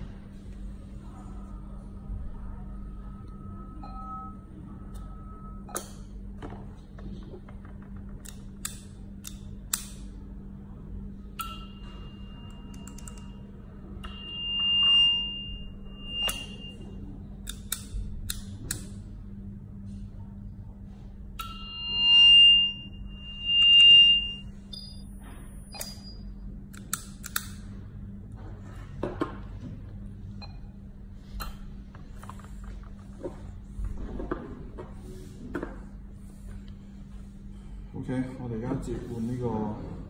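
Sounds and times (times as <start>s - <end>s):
low hum: 0.0s - 40.0s
high electronic tone: 14.0s - 17.0s, 21.4s - 26.2s.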